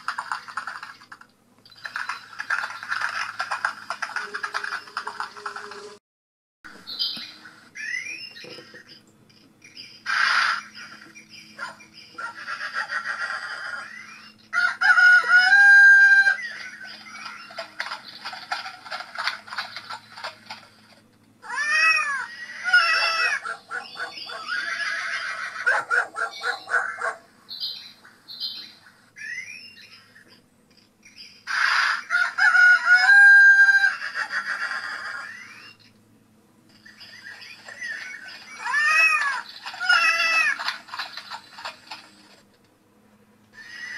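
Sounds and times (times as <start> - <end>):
animal calls: 10.0 - 20.7, 21.4 - 27.3, 31.4 - 35.9, 36.8 - 42.4, 43.5 - 43.9
rooster crowing: 14.5 - 16.5, 31.8 - 35.3.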